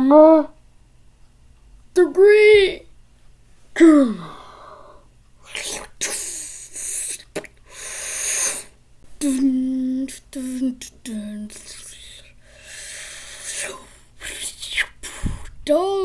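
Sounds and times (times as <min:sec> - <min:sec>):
person making cartoon sounds: 0:05.4 - 0:16.0.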